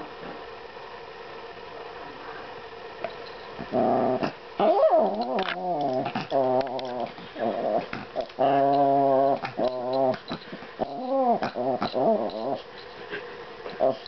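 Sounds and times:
small dog growling: 0:03.6 - 0:14.0.

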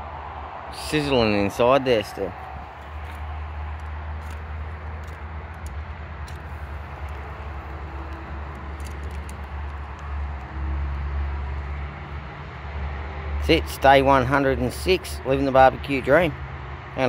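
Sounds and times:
small crackles: 0:02.8 - 0:10.6.

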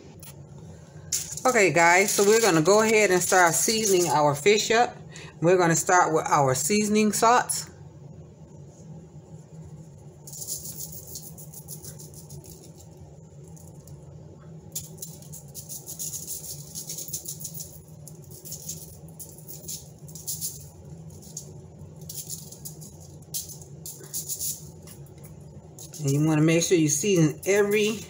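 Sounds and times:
salt shaker rattling: 0:01.1 - 0:04.2, 0:09.8 - 0:14.0, 0:14.7 - 0:28.0.

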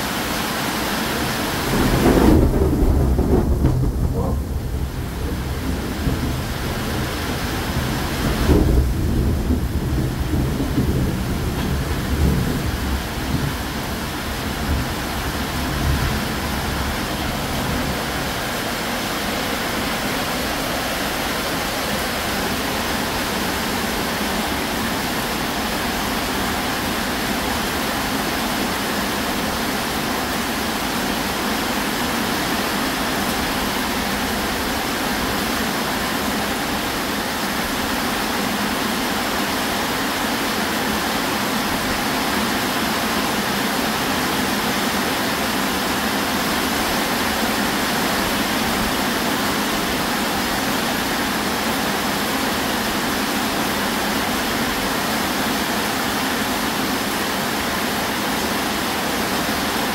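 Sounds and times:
heavy rain pouring: 0:00.0 - 0:59.9
thunder rumbling: 0:01.2 - 0:27.4.

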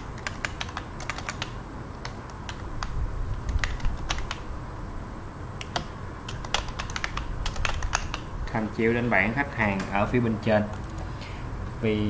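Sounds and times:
computer keyboard typing: 0:00.0 - 0:04.5, 0:05.6 - 0:08.3.

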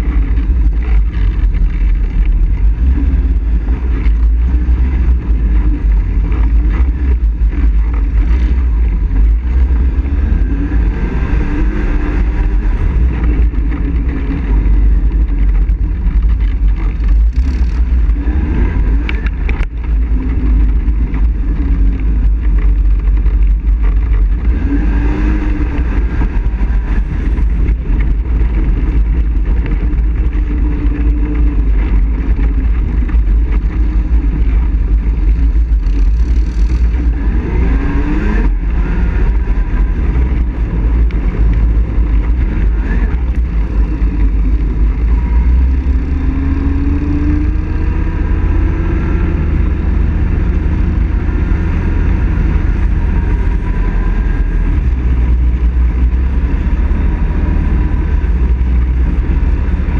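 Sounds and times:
atv engine running: 0:00.0 - 0:59.9.

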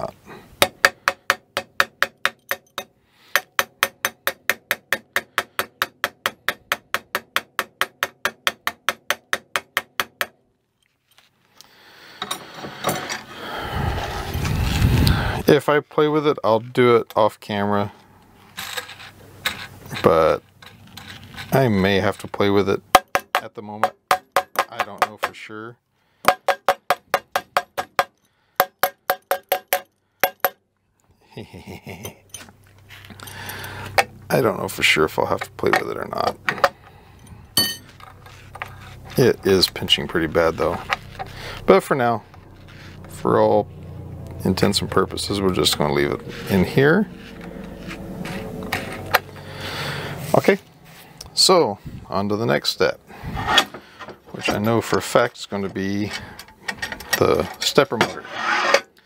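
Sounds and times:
metallic clicking of hand tools: 0:00.6 - 0:10.4
small hammer tapping metal: 0:00.6 - 0:10.4, 0:23.0 - 0:25.4, 0:26.2 - 0:30.6, 0:37.6 - 0:37.9
handling of metal frame: 0:53.3 - 0:58.9.

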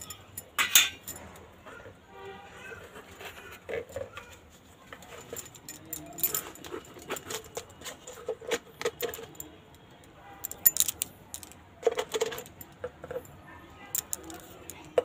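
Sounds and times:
steel utensils clinking: 0:00.0 - 0:01.4, 0:05.0 - 0:15.0.

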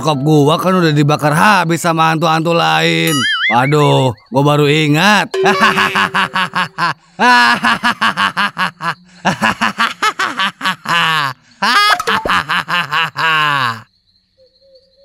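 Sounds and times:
cartoon voice laughing hysterically: 0:05.5 - 0:13.8.

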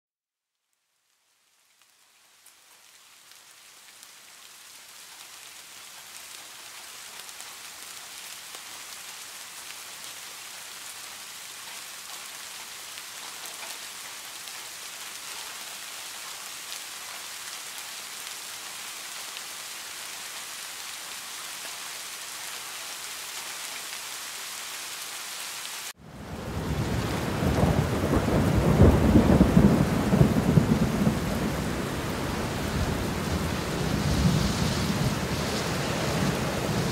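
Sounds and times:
rain on hard surface: 0:00.4 - 0:36.9
deep rumble of thunder: 0:26.2 - 0:36.9.

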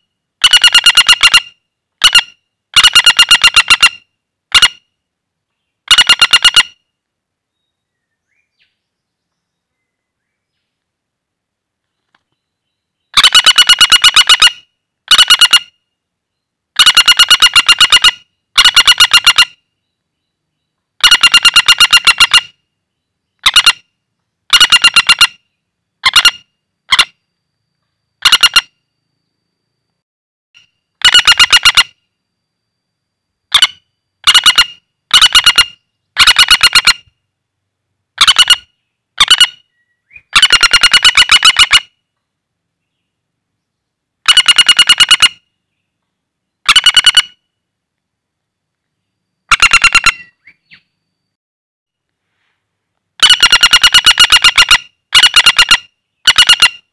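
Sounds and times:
woodpecker rattling trills: 0:00.0 - 0:04.9, 0:05.8 - 0:06.8, 0:12.1 - 0:15.8, 0:16.7 - 0:22.6, 0:23.2 - 0:28.9, 0:30.6 - 0:32.2, 0:33.5 - 0:37.2, 0:38.2 - 0:42.2, 0:44.2 - 0:45.9, 0:46.6 - 0:47.5, 0:49.4 - 0:51.0, 0:53.2 - 0:56.9.

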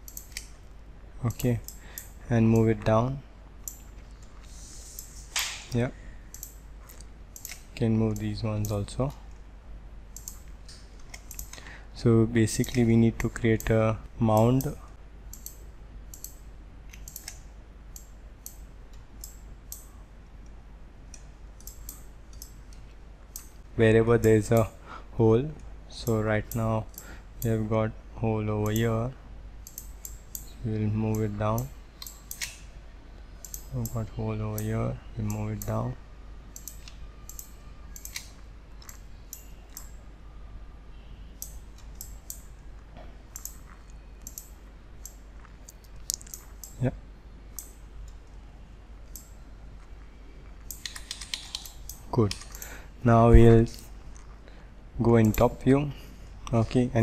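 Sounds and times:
computer mouse clicking: 0:00.0 - 0:00.6, 0:06.3 - 0:08.8, 0:10.2 - 0:11.6, 0:12.6 - 0:20.5, 0:21.1 - 0:23.6, 0:29.6 - 0:32.6, 0:33.4 - 0:35.8, 0:36.5 - 0:40.0, 0:43.3 - 0:46.8, 0:50.6 - 0:52.8
faint low hum: 0:00.0 - 0:57.0.

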